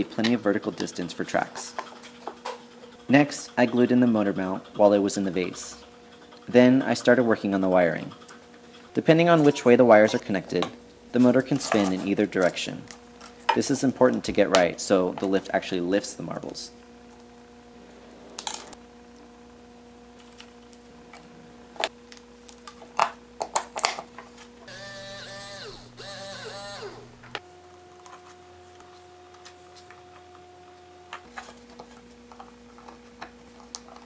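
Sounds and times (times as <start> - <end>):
faint steady hum: 3.0 - 34.0
small gear motor whirring: 24.6 - 27.4.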